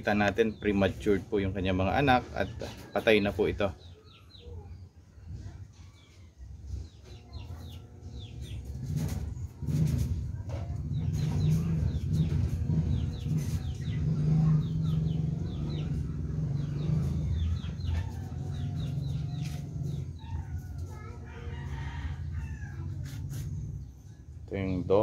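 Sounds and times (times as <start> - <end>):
chickens clucking: 0.0 - 4.7, 5.3 - 24.3
rooster crowing: 20.9 - 22.9.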